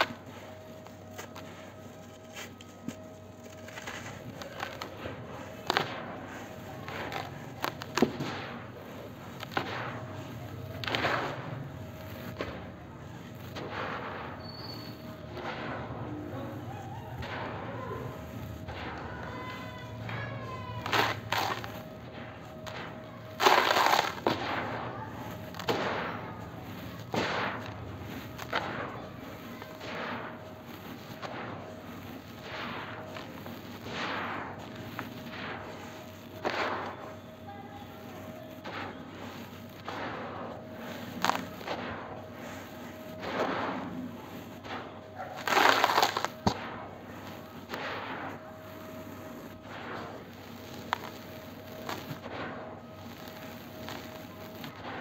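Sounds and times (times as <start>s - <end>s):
grains crunching and clicking: 0.0s - 16.0s, 17.2s - 55.0s
powder pouring with soft hiss: 0.0s - 16.6s, 17.8s - 55.0s.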